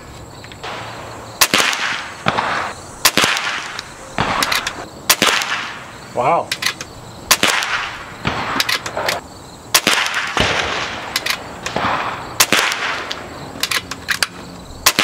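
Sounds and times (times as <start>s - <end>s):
gunshots with echo: 0.6s - 5.9s, 7.3s - 13.2s.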